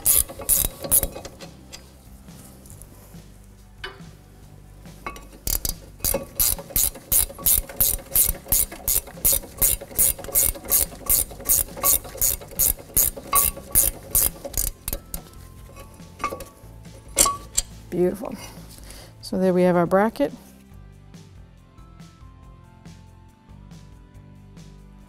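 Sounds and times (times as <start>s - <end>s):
ratchet clicking: 0.0s - 2.0s, 5.0s - 17.8s.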